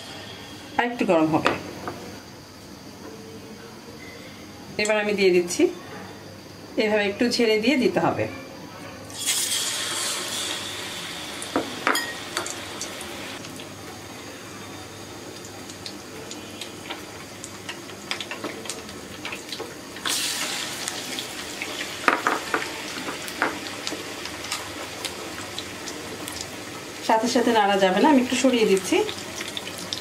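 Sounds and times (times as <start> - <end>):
chicken deep-frying in oil: 9.1 - 30.0.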